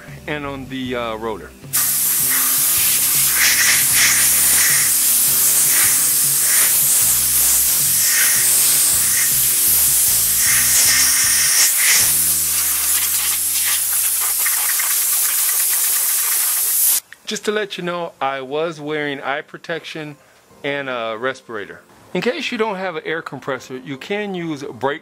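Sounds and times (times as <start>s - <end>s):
compressed air blow gun hissing: 1.7s - 17.0s.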